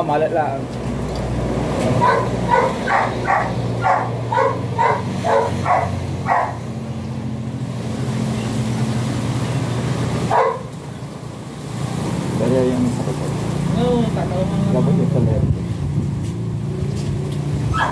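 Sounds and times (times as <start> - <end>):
dog barking: 2.0 - 6.6, 10.3 - 10.7.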